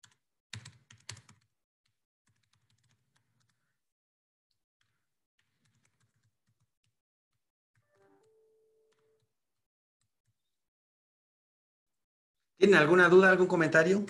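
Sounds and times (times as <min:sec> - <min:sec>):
faint computer keyboard typing: 0:00.0 - 0:03.8, 0:04.8 - 0:07.0, 0:07.8 - 0:09.4.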